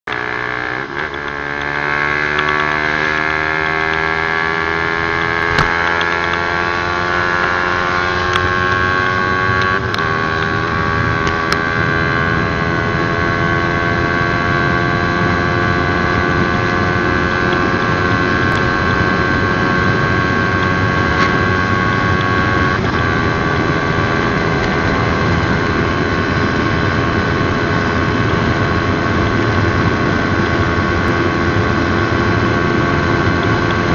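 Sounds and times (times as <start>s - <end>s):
motorcycle engine at full throttle: 0.0s - 33.9s.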